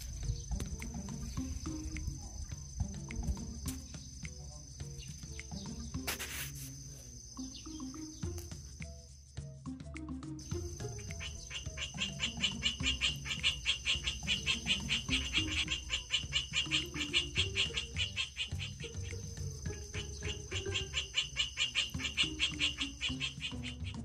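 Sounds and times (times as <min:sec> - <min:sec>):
soft background music: 0:00.0 - 0:24.0
crab pulsing chirr: 0:10.4 - 0:24.0.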